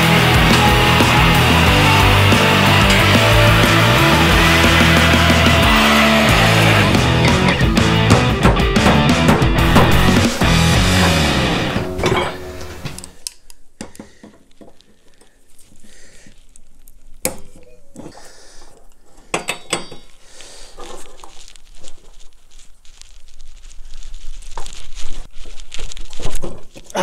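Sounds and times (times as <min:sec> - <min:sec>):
hand tools clinking on metal: 0:19.3 - 0:20.2.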